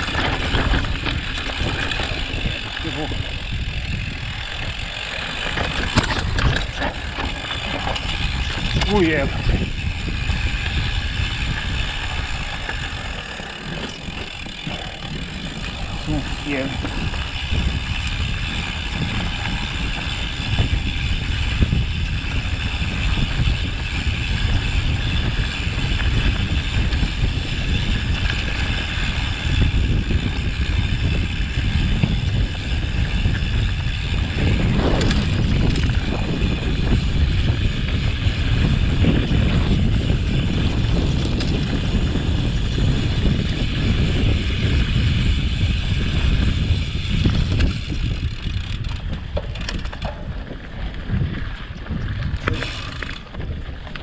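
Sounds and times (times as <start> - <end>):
bike clattering: 0.0 - 54.0
bike tyres rumbling over stones: 0.0 - 54.0.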